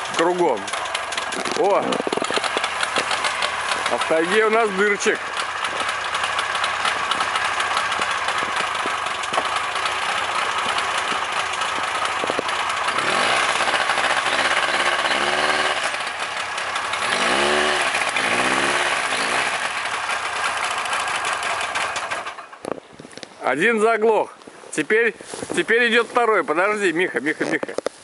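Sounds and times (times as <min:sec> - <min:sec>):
snowmobile engine revving: 0:00.0 - 0:22.4.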